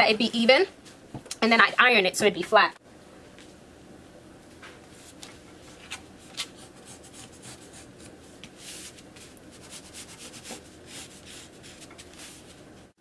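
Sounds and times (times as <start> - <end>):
pencil scratching on paper: 6.6 - 12.4.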